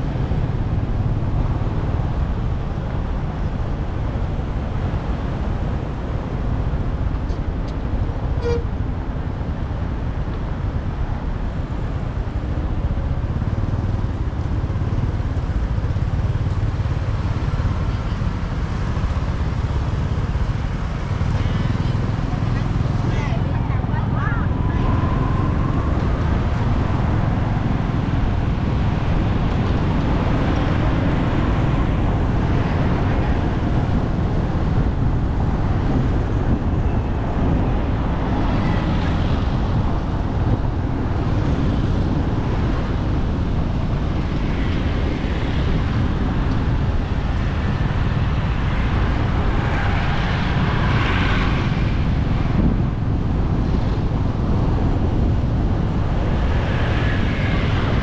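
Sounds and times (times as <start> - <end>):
road traffic noise: 0.0 - 58.0
wind rushing on microphone: 0.0 - 58.0.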